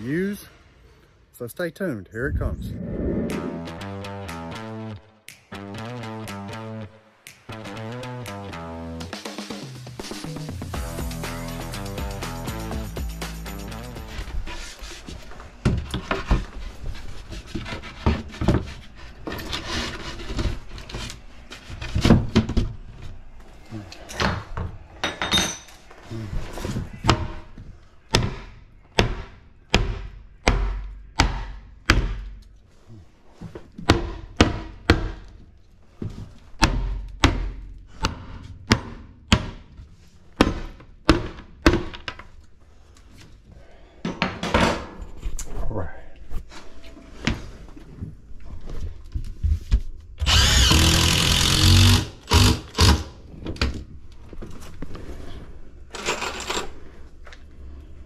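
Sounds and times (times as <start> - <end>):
power tool running: 50.2 - 52.6.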